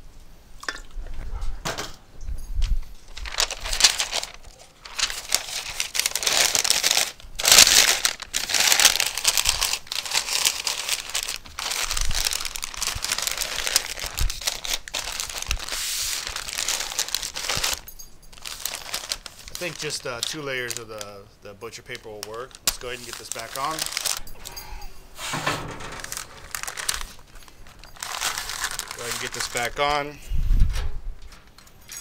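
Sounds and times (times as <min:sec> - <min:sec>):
paper crinkling and rustling: 0:03.0 - 0:24.6, 0:25.2 - 0:30.2.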